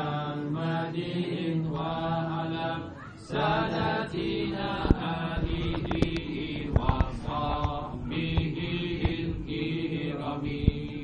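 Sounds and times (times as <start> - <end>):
men chanting unaccompanied: 0.0 - 11.0
sharp clicks: 4.8 - 9.3.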